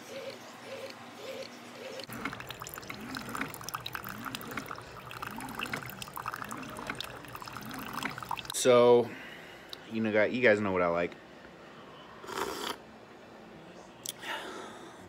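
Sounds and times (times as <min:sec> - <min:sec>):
coffee maker pulsing: 0:01.8 - 0:08.6
coffee trickling into a mug: 0:02.1 - 0:08.6.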